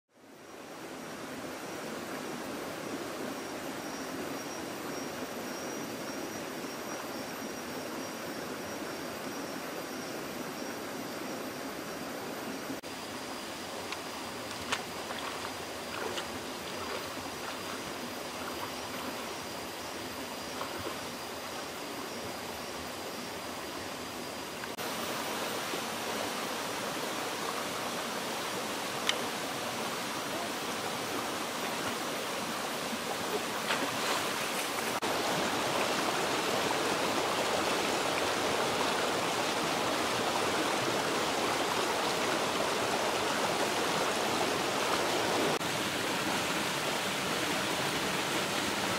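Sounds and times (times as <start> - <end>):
stream running over rocks: 0.2 - 48.9
splashes from wading: 13.7 - 19.5, 30.4 - 41.0.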